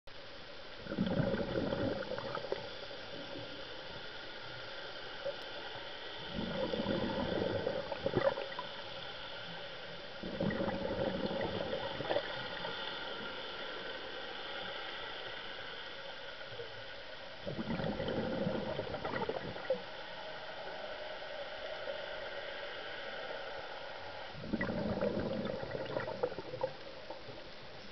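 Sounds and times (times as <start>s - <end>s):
steady underwater hiss: 0.1s - 27.9s
underwater exhaled bubbles gurgling: 0.7s - 15.7s, 16.4s - 20.2s, 24.4s - 27.7s.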